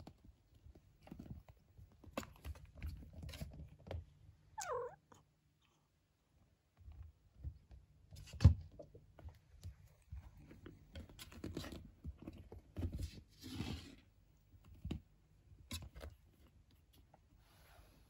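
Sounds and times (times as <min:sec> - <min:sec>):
kittens scuffling on a blanket: 0:00.0 - 0:04.2, 0:09.0 - 0:18.0.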